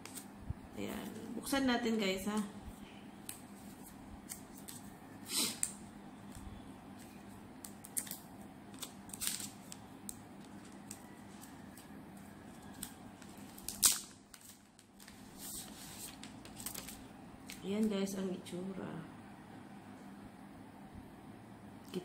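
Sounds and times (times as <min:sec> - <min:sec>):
faint steady hum: 0:00.0 - 0:22.0
smartphone packaging handled: 0:07.7 - 0:17.6.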